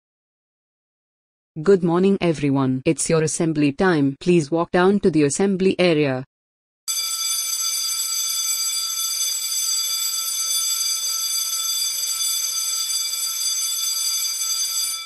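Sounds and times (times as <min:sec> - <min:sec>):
electric school bell ringing: 0:06.9 - 0:15.0.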